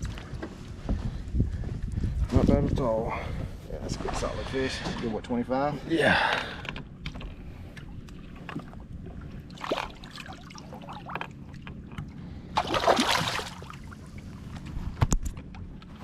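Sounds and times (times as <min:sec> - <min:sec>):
water splashing: 0:08.3 - 0:14.2.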